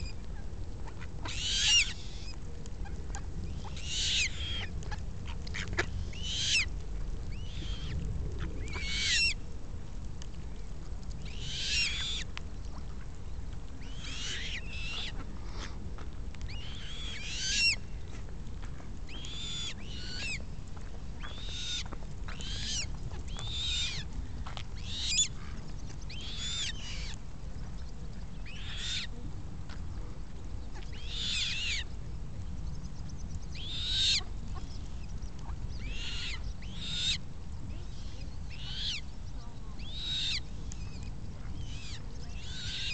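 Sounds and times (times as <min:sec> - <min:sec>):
steady low rumble: 0:00.0 - 0:42.9
coots calling: 0:01.0 - 0:02.4, 0:03.6 - 0:04.7, 0:05.4 - 0:06.7, 0:13.8 - 0:15.3.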